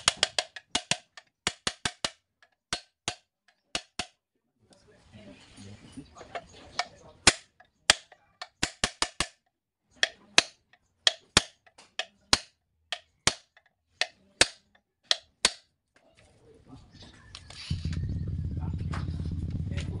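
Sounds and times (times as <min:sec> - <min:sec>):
hammer striking metal punch: 0:00.0 - 0:04.2, 0:06.8 - 0:09.4, 0:10.0 - 0:15.7.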